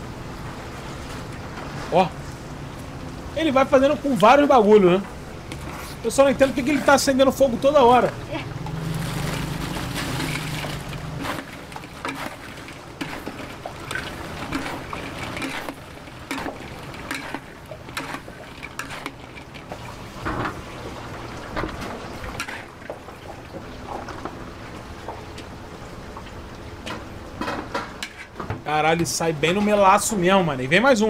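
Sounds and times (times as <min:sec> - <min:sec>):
food stirred in wok: 0:05.4 - 0:21.0, 0:21.7 - 0:24.2, 0:27.8 - 0:28.4
spatula scraping pan: 0:05.5 - 0:07.6, 0:08.7 - 0:20.6, 0:22.3 - 0:23.0, 0:27.9 - 0:28.4.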